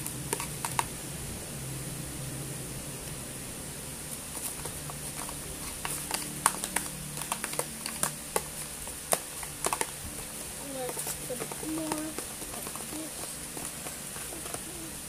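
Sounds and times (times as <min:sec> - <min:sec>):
plastic spoon tapping plastic tub: 0:04.5 - 0:08.5, 0:09.1 - 0:14.7.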